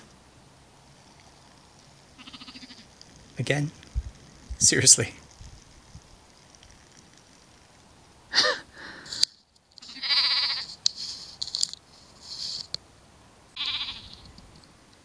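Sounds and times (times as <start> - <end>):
sheep bleating: 2.2 - 2.9, 9.8 - 10.7, 13.6 - 14.2.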